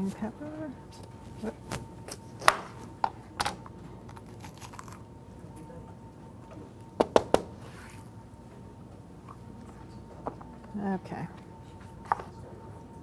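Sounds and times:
blade knocking on cutting board: 7.0s - 7.5s.

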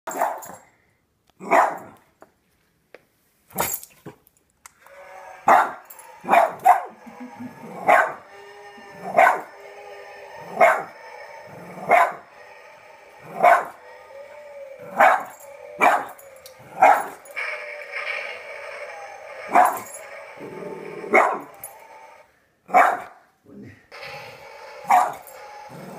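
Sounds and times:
dog barking: 0.1s - 0.6s, 1.4s - 2.0s, 5.4s - 6.9s, 7.8s - 8.2s, 9.1s - 9.5s, 10.5s - 10.9s, 11.8s - 12.2s, 13.3s - 13.8s, 14.8s - 17.2s, 21.1s - 21.5s, 22.7s - 23.2s, 24.8s - 25.2s
droning sound effect: 4.9s - 22.2s.

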